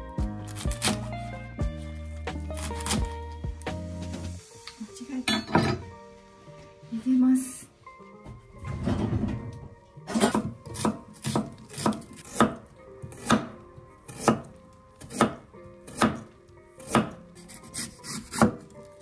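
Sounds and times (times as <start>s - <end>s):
knife chopping on wooden board: 0.5s - 1.1s, 2.6s - 3.1s, 10.1s - 18.7s.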